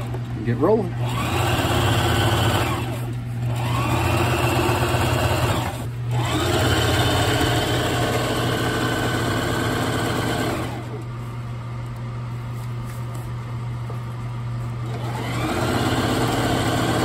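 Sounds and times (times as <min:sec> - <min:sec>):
electric sewing machine stitching: 0:01.0 - 0:11.0, 0:14.8 - 0:17.0.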